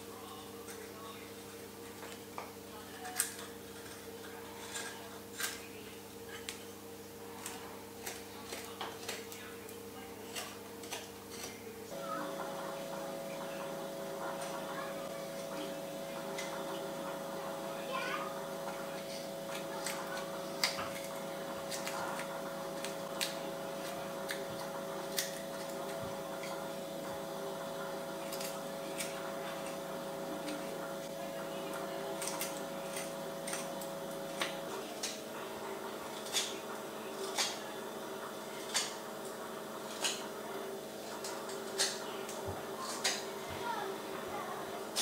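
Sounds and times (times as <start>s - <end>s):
steady hum: 0.0s - 45.0s
knife shaving wood: 1.8s - 6.6s, 7.3s - 11.6s, 12.2s - 35.3s.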